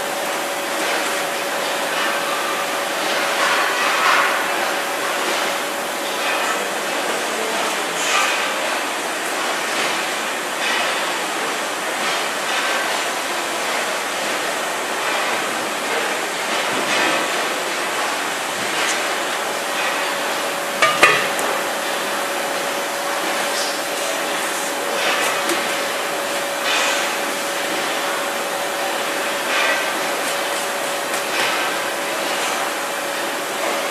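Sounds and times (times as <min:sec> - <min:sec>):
factory machinery din: 0:17.9 - 0:23.5
sharp knocks: 0:20.8 - 0:21.6
metal moulds clattering: 0:20.8 - 0:21.8.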